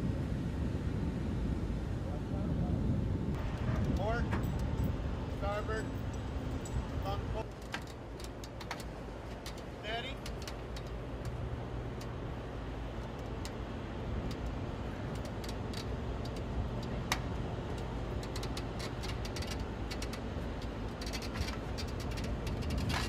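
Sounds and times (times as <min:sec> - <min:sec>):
low machinery hum: 0:00.0 - 0:23.0
metallic clicks and rattles: 0:07.4 - 0:12.2, 0:14.2 - 0:23.0.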